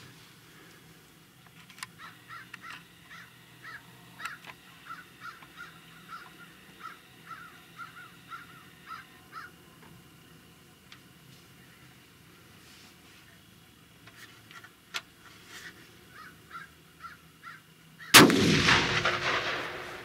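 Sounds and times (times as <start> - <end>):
birds calling: 1.7 - 9.8, 15.9 - 18.2.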